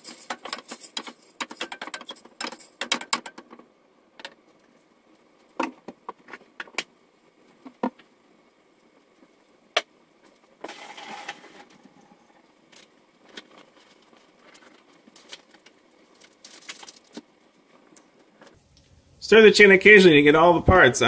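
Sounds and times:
chicken sizzling in pot: 10.6s - 11.8s.

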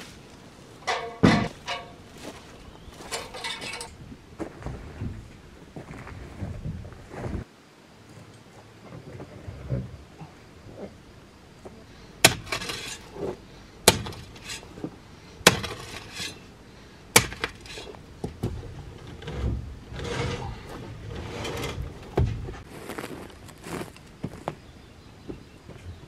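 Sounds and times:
dirt and debris scattering: 0.0s - 7.5s, 12.2s - 16.5s, 17.1s - 26.0s
scraping and rustling in earth: 0.0s - 7.5s, 8.1s - 11.1s, 11.7s - 16.5s, 17.2s - 26.0s
hoe chopping into stony soil: 12.2s - 14.6s, 15.4s - 16.3s, 17.2s - 17.8s.

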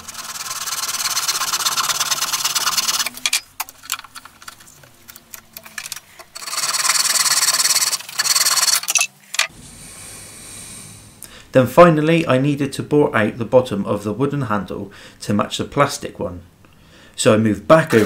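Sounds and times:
hacksaw sawing wood: 0.0s - 3.2s, 6.4s - 8.9s.

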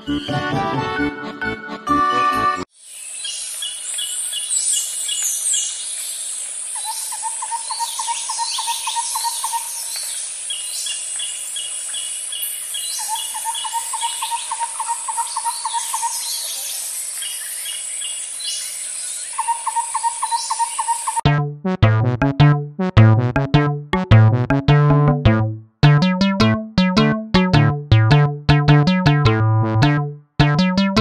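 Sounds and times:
birds chirping: 3.0s - 21.2s
low rhythmic trill: 21.2s - 31.0s.

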